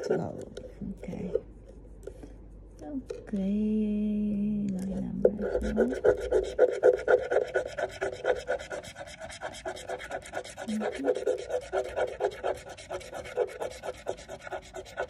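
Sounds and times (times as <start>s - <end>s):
coin scratching lottery ticket: 5.4s - 15.0s.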